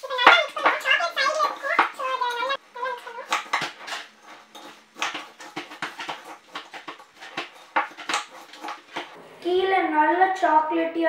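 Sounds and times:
spoon stirring cereal in bowl: 0.2s - 9.2s.

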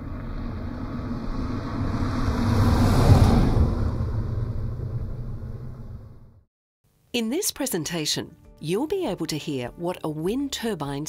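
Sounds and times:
vehicle driving past: 0.0s - 6.5s.

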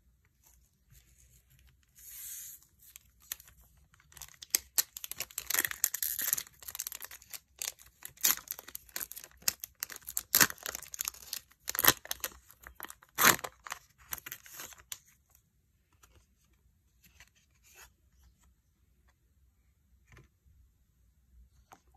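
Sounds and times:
foil wrapper tearing and crinkling: 4.1s - 14.4s.

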